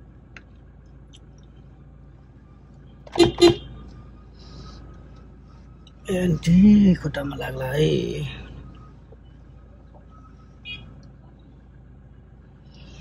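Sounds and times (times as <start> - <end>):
low steady hum: 0.0 - 13.0
vehicle horn toots: 3.0 - 3.8, 10.6 - 10.9.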